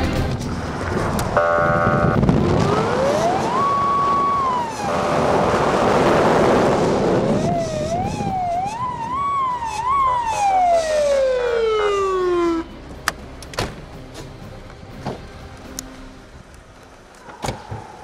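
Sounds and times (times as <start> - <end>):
loud vehicle rush: 0.0 - 16.8
police siren wailing: 1.4 - 12.8.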